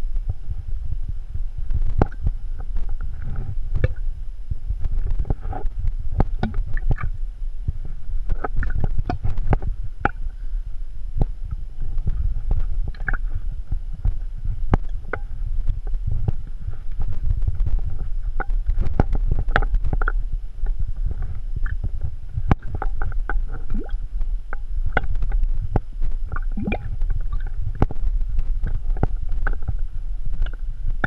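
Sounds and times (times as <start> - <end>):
wind rumble on microphone: 0.0 - 31.0
water sloshing in a bottle: 4.9 - 7.2, 8.2 - 10.2, 11.2 - 29.8.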